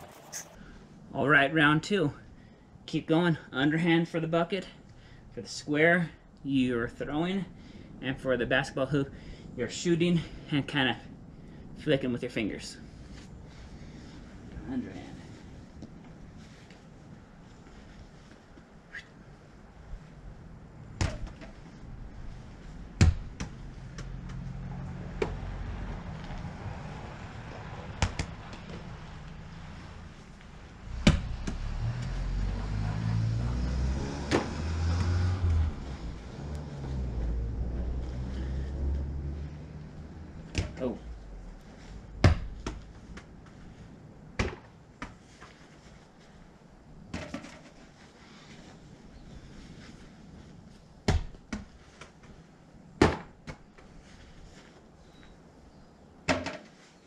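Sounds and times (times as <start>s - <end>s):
balls knocking and bouncing: 20.9s - 21.8s, 22.9s - 25.6s, 27.5s - 29.0s, 30.9s - 32.1s, 40.4s - 41.1s, 42.2s - 43.6s, 47.1s - 47.9s, 56.3s - 56.8s.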